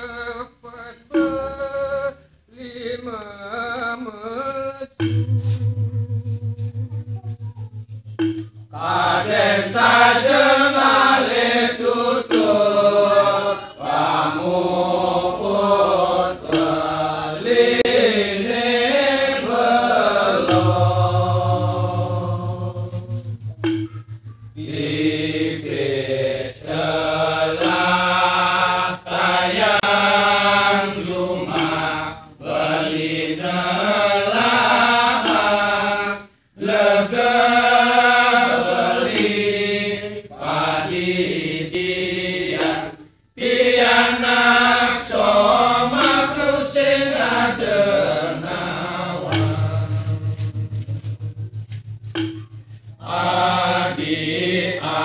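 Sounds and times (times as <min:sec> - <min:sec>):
low held note: 0:05.0 - 0:09.6, 0:20.3 - 0:26.2, 0:49.2 - 0:54.0
group of men chanting: 0:08.8 - 0:22.8, 0:24.6 - 0:50.2, 0:53.0 - 0:55.0.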